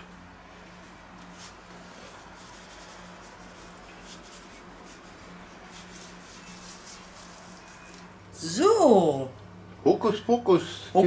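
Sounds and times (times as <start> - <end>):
salt rustling on pork rind: 1.2 - 8.1.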